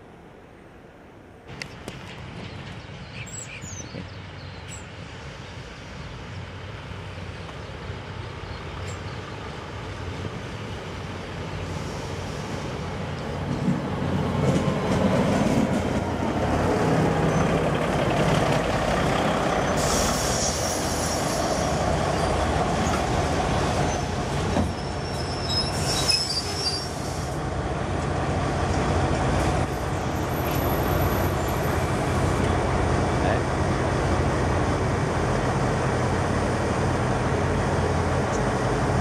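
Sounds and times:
train rumbling past: 0.0s - 39.0s
metallic wheel squeals: 24.7s - 27.1s.

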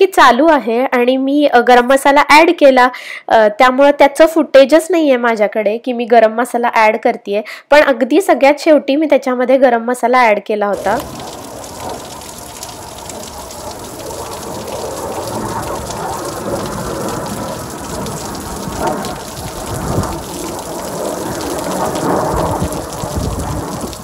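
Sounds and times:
heavy rain falling: 10.8s - 24.0s
low rumbles: 10.8s - 24.0s.

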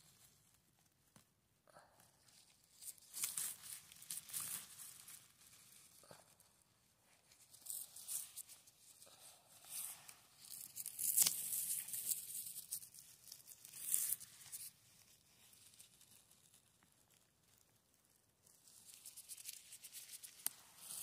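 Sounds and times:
plastic glove crinkling: 2.2s - 21.0s
dry pine needles crackling: 2.3s - 6.0s, 7.3s - 8.6s, 9.2s - 17.6s, 18.4s - 21.0s.

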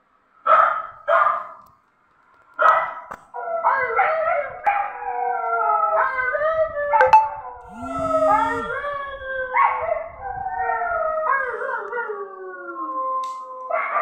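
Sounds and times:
small dog barking: 0.5s - 1.6s, 2.6s - 4.9s
dog howling: 3.4s - 7.0s, 7.7s - 14.0s.

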